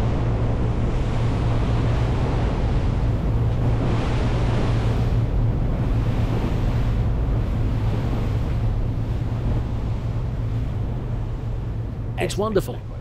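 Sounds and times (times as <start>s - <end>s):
wind on microphone: 0.0s - 12.2s
boat engines droning: 0.0s - 13.0s
water rushing along hull: 0.0s - 13.0s.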